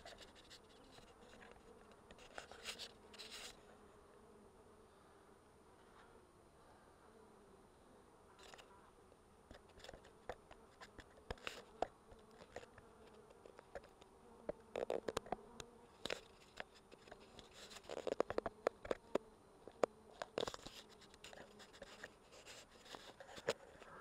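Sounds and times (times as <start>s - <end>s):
honey bees buzzing: 0.1s - 24.0s
sharp clicks and knocks: 9.5s - 22.1s.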